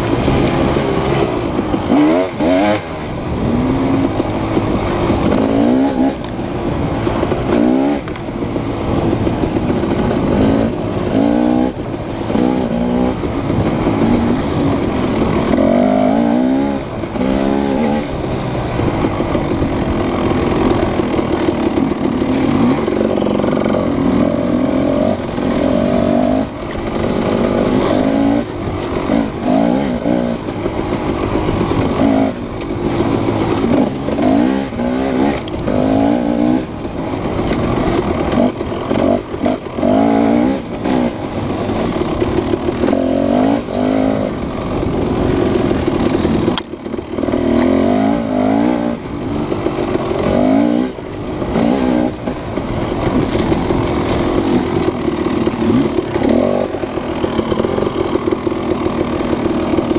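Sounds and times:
dirt bike engine revving: 0:00.0 - 0:59.9.

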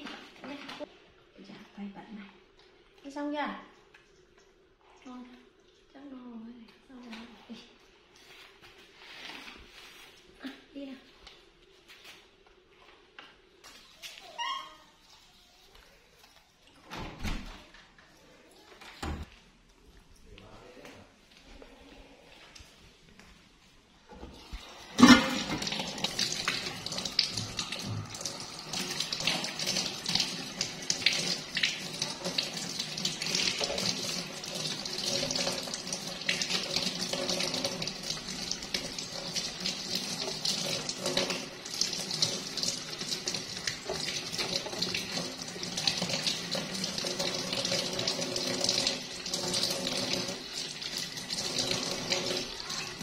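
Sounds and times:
water running into a metal sink: 0:24.3 - 0:53.0.

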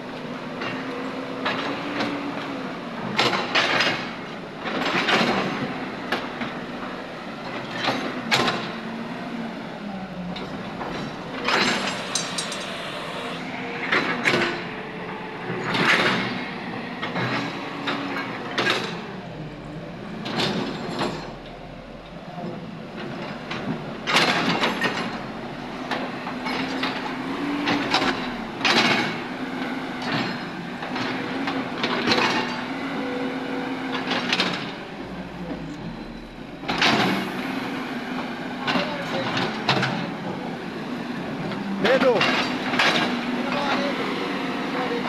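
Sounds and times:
excavator diesel engine: 0:00.0 - 0:45.0
steel clanking on concrete rubble: 0:10.3 - 0:12.8, 0:20.3 - 0:25.3, 0:25.9 - 0:29.3, 0:30.0 - 0:32.7, 0:38.6 - 0:40.4, 0:41.4 - 0:44.0.

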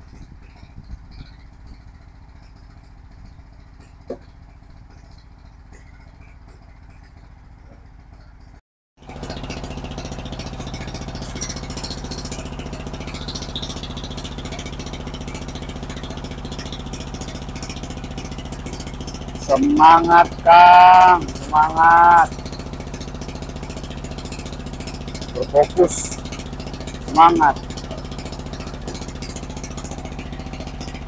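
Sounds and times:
machine engine humming: 0:00.0 - 0:31.0
machine clatter: 0:22.3 - 0:31.0.

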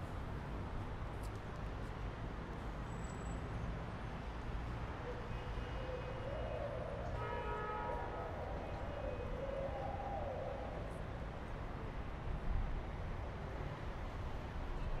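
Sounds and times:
city traffic rumble: 0:00.0 - 0:15.0
distant siren wailing: 0:05.2 - 0:11.2.

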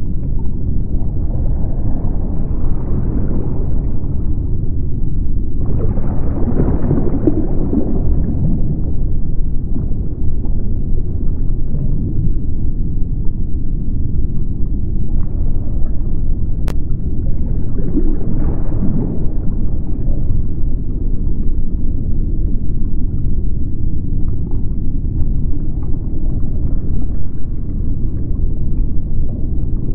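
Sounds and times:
deep steady rumble: 0:00.0 - 0:29.9.

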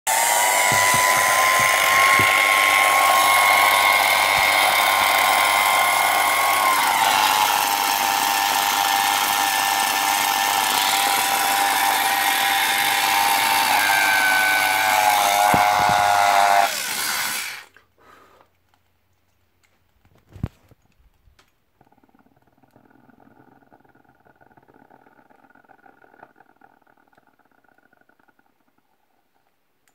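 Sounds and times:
hair dryer whining: 0:00.1 - 0:17.7
motor winding down: 0:00.1 - 0:17.7.

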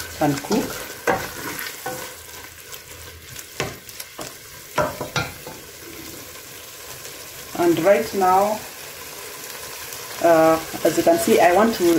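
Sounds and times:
food sizzling in a pot: 0:00.0 - 0:11.9
wooden spoon scraping a pot: 0:00.3 - 0:02.4.

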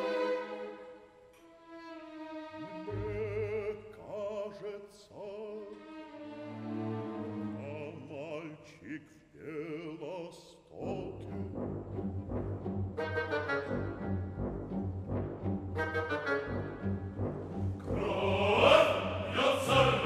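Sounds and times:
orchestra playing: 0:00.0 - 0:03.8, 0:05.7 - 0:08.0, 0:11.0 - 0:20.0
operatic singing voice: 0:02.6 - 0:06.0, 0:07.2 - 0:11.7, 0:17.8 - 0:20.0.

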